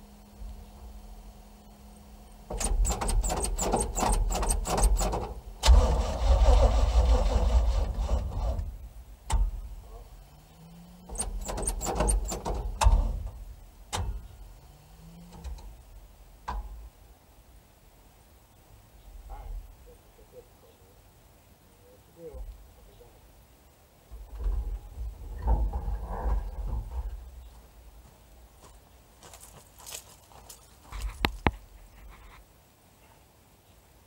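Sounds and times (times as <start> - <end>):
engine cranking by starter: 2.4 - 9.8, 10.4 - 15.8
sharp starter clicks: 2.5 - 9.7, 11.0 - 14.4.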